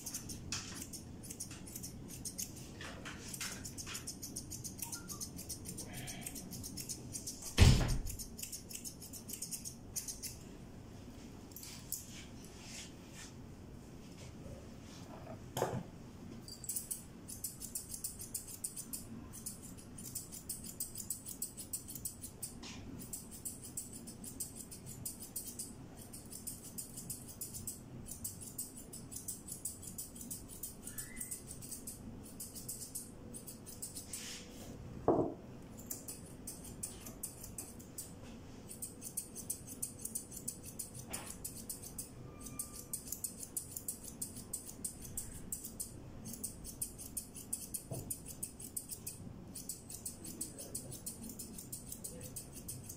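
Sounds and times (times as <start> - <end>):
scissors snipping fur: 0.0 - 2.6, 3.2 - 10.4, 16.5 - 34.1, 35.7 - 38.1, 38.7 - 52.9.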